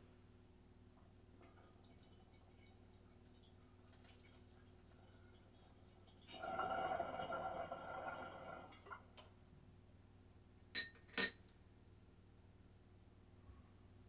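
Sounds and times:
water bubbling in glass: 6.3s - 9.0s.

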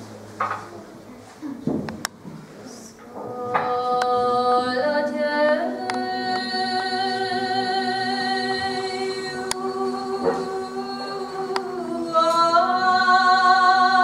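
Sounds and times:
woman singing folk lament: 3.0s - 14.0s.

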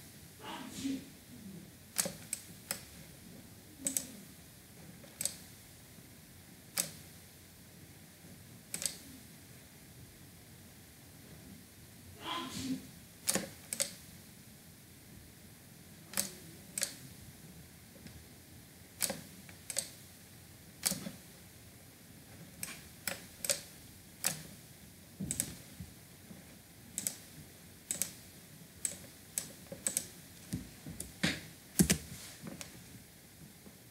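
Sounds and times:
mouse and keyboard clicks: 2.0s - 2.9s, 3.8s - 4.2s, 6.8s - 7.0s, 8.7s - 9.0s, 13.3s - 14.0s, 16.1s - 17.0s, 19.0s - 20.0s, 20.8s - 21.2s, 22.6s - 24.5s, 25.3s - 25.6s, 27.0s - 27.3s, 27.9s - 28.2s, 28.8s - 30.2s, 31.8s - 32.1s.

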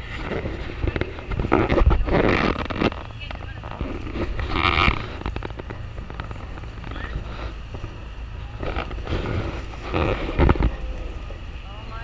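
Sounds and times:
rain ponchos crackling: 0.0s - 12.0s
steady low rumble: 0.0s - 12.0s
wind buffeting microphone: 0.0s - 12.0s.

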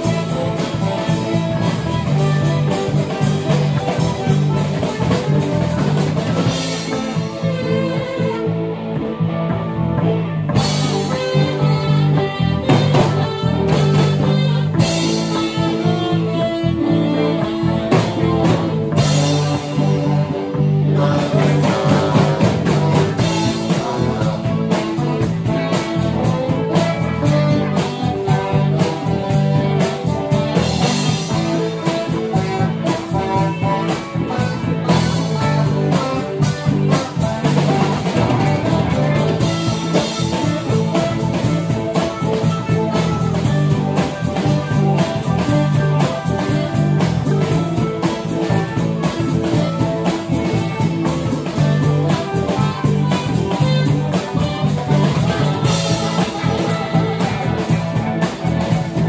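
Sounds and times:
bass guitar: 0.0s - 59.0s
electric guitars: 0.0s - 59.0s
steady beat: 0.0s - 59.0s.

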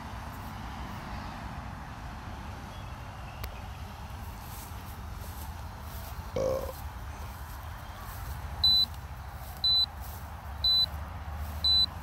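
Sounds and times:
short high electronic beeps: 8.6s - 8.9s, 10.6s - 10.9s, 11.7s - 12.0s.

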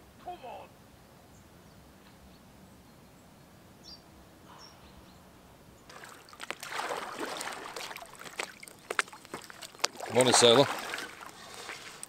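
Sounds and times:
faint bird chirps: 1.3s - 5.9s
paddle splashing in water: 5.9s - 12.0s.

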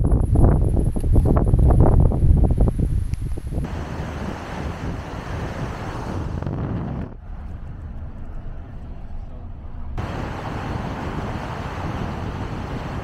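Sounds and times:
car engine and tyre noise: 2.6s - 13.0s.

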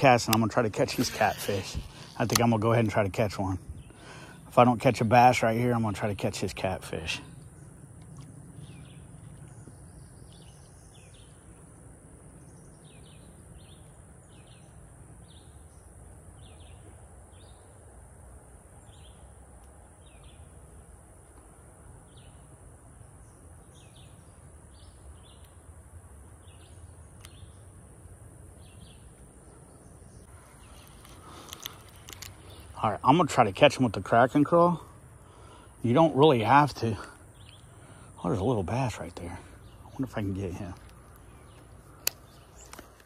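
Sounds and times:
bird chirping: 8.5s - 17.8s, 22.0s - 25.7s, 26.3s - 27.9s, 28.5s - 43.0s.

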